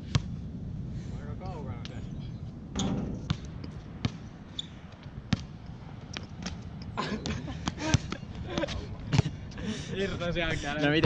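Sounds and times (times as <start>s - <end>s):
basketball bouncing on hard court: 2.8s - 4.3s, 5.0s - 6.6s.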